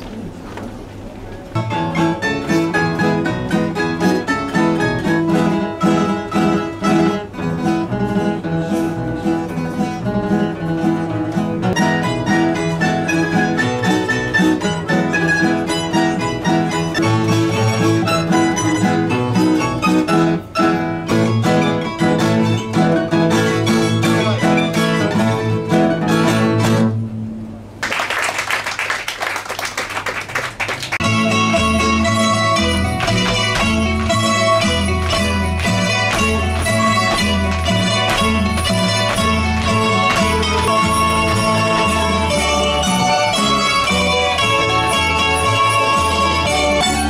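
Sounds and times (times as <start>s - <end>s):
folk string band playing: 0.0s - 27.8s, 30.8s - 47.0s.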